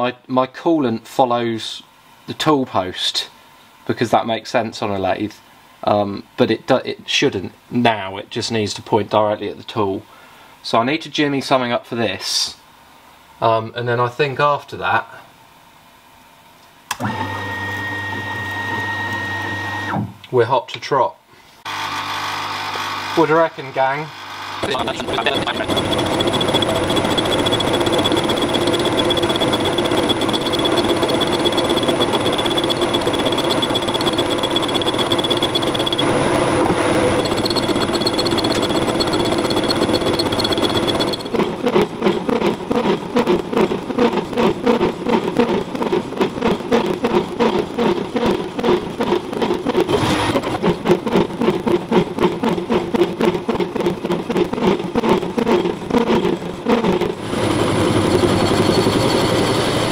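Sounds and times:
lathe machine whir and whine: 17.0s - 20.0s, 21.7s - 59.9s
rapid regular machine pulsing: 24.2s - 59.9s.

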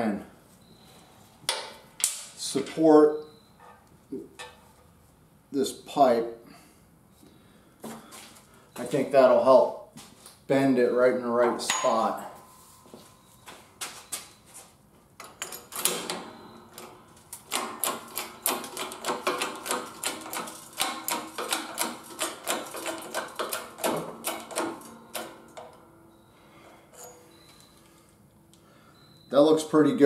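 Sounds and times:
hydraulic jack handle clanking: 15.2s - 25.8s
metallic clicks and clanks: 15.2s - 25.8s.

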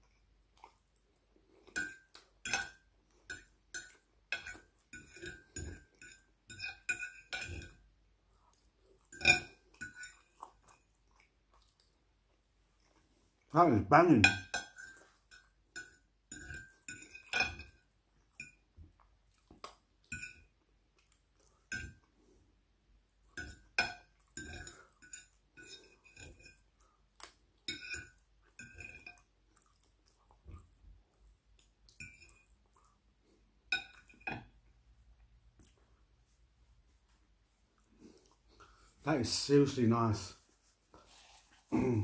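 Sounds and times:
fork clinking on ceramic plate: 1.7s - 7.8s, 9.1s - 10.3s, 14.2s - 17.8s, 20.1s - 20.5s, 23.4s - 26.6s, 27.7s - 29.2s, 33.7s - 34.5s.

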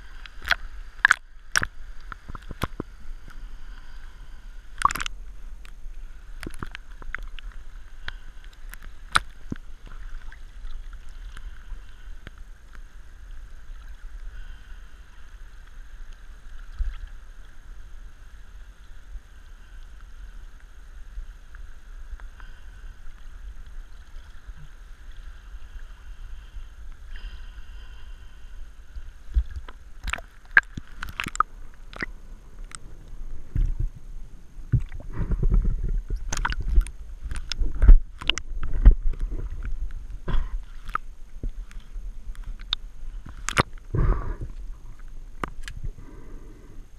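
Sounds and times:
water sloshing against camera: 0.0s - 12.4s, 24.0s - 46.5s
low underwater churning rumble: 0.0s - 46.9s.

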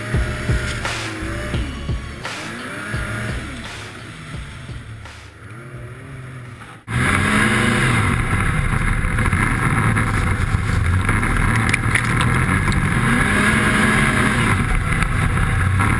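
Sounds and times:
snowmobile engine running: 0.0s - 15.9s.

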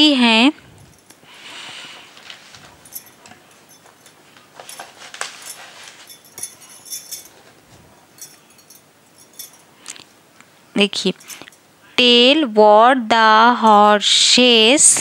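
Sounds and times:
paper rustling and crackling: 2.1s - 2.8s, 4.3s - 6.1s.

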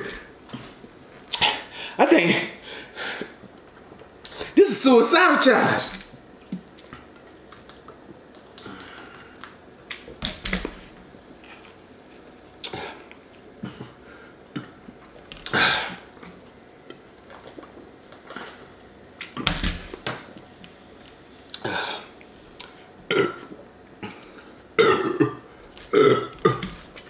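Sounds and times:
man breathing: 2.6s - 3.4s.

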